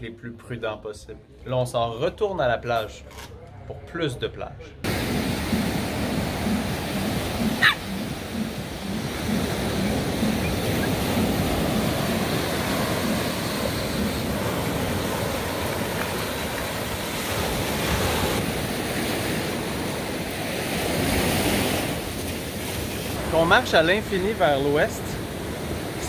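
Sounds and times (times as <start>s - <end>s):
ocean surf breaking: 4.8s - 26.0s
wind buffeting microphone: 4.9s - 23.7s.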